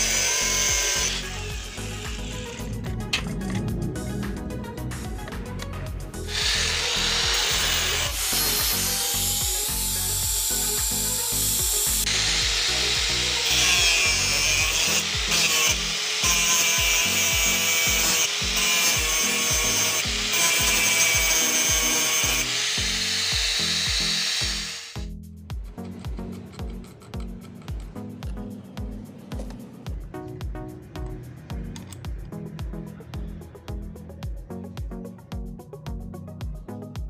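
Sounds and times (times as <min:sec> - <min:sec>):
angle grinder grinding steel: 0:00.0 - 0:04.7, 0:06.2 - 0:25.1
background music with steady beat: 0:00.0 - 0:37.0.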